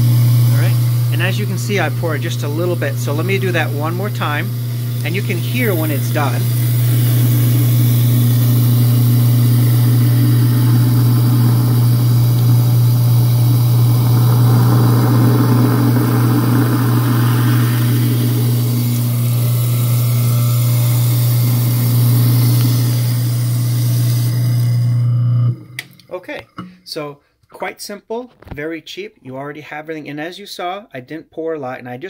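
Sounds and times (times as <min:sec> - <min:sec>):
garbage disposal motor humming: 0:00.0 - 0:26.8
rushing churning froth: 0:00.4 - 0:22.8
tap water pouring: 0:03.0 - 0:24.7.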